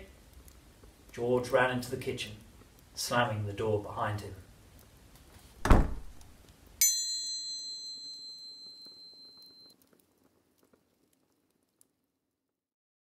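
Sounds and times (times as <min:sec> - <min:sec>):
bright metallic chime: 0:06.8 - 0:09.7.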